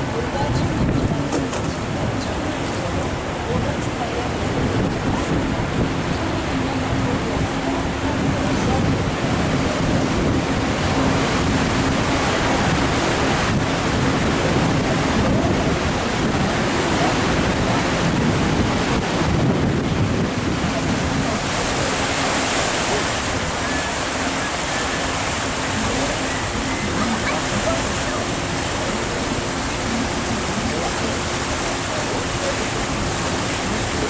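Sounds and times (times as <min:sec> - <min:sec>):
low engine hum: 0:00.0 - 0:34.0
river water rushing along hull: 0:00.0 - 0:34.0
wind buffeting microphone: 0:00.0 - 0:34.0.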